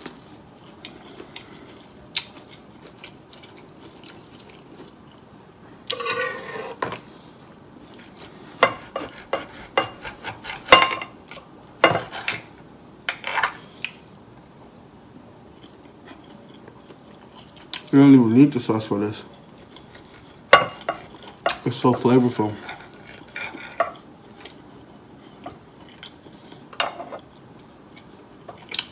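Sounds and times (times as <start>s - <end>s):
chewing with mouth clicks: 0.0s - 5.2s
knife and fork scraping a plate: 5.9s - 7.0s, 8.0s - 11.1s, 11.8s - 12.4s, 19.8s - 24.0s.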